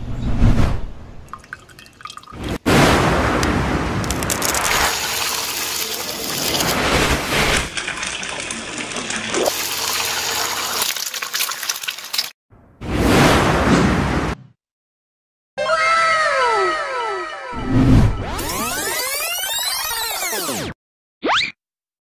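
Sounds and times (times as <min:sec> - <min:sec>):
egg sizzling in hot oil: 0:09.4 - 0:12.4.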